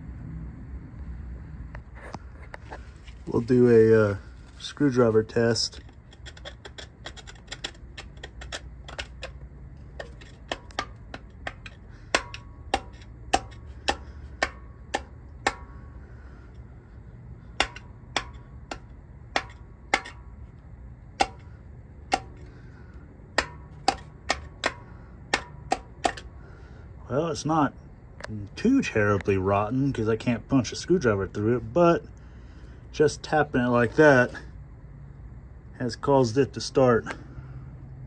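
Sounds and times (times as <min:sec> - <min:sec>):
screwdriver tapping metal: 0:05.8 - 0:15.8, 0:17.6 - 0:20.2, 0:21.2 - 0:21.5, 0:22.1 - 0:22.5, 0:23.4 - 0:26.3.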